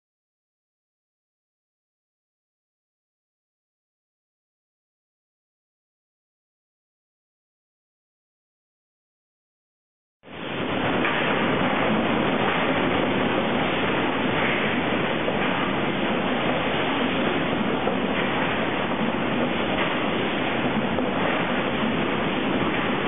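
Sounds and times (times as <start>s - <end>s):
sawmill conveyor machinery din: 10.3s - 23.0s.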